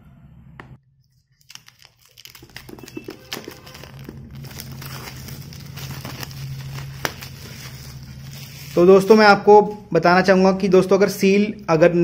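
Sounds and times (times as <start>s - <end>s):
plastic shrink-wrap crinkling: 1.2s - 9.3s.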